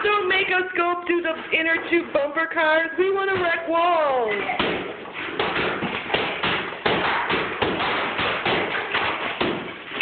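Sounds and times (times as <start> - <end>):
hammers striking plaster wall: 4.5 - 10.0.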